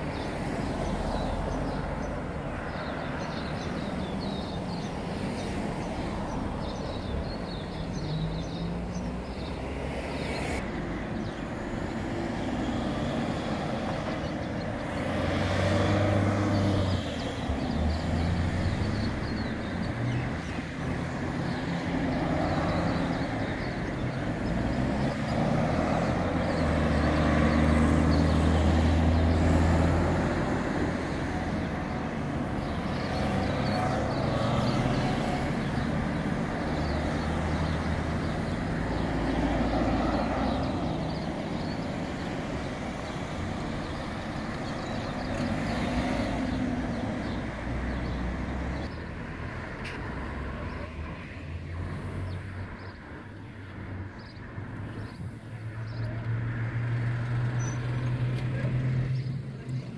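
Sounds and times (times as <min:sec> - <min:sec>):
cars driving past: 0:00.0 - 0:59.9
loud vehicles passing: 0:00.0 - 0:59.9.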